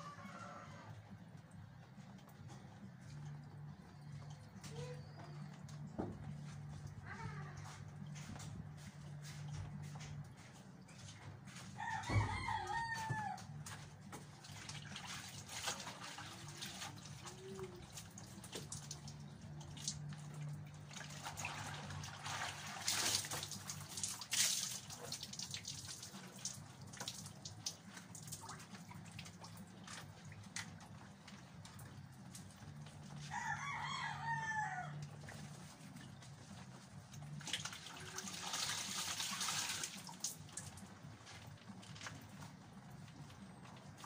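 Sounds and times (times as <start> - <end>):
rooster crowing: 0.0 - 1.0, 11.5 - 13.5, 33.2 - 35.1
wet laundry rustling and dripping: 0.0 - 44.0.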